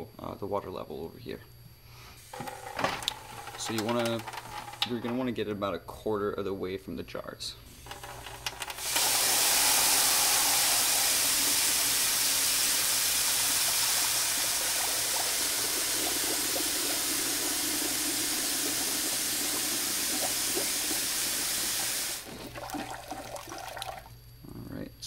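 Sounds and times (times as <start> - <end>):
faucet water pouring into metal pot: 8.0 - 24.1.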